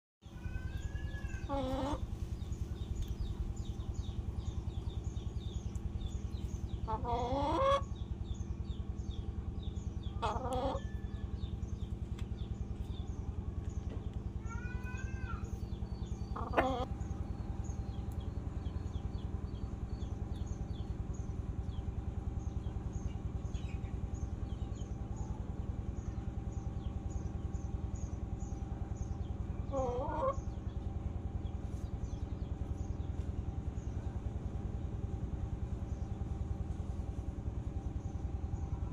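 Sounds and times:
low rhythmic hum: 0:00.2 - 0:38.9
chickens clucking: 0:00.5 - 0:03.9, 0:06.7 - 0:08.0, 0:10.1 - 0:11.2, 0:15.5 - 0:18.6, 0:29.6 - 0:30.6.

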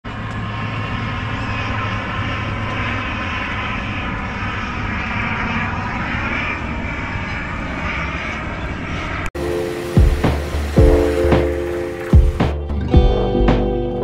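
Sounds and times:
airplane engine drone: 0:00.0 - 0:14.0.

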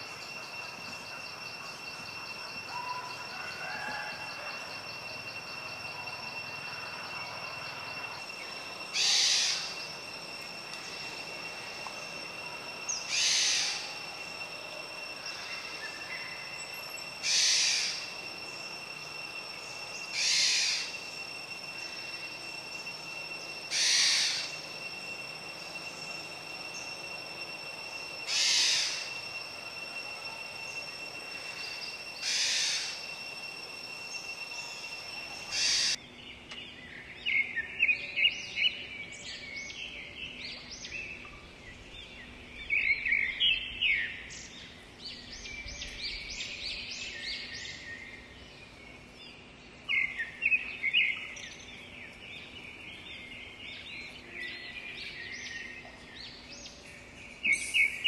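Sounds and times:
insects high-pitched whine: 0:00.0 - 0:58.0.

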